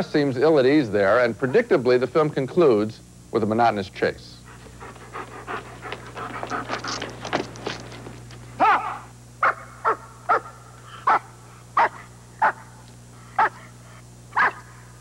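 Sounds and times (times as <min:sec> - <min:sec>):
dog panting: 0:04.4 - 0:08.6
dog barking: 0:04.9 - 0:12.8, 0:13.4 - 0:13.7, 0:14.3 - 0:14.8.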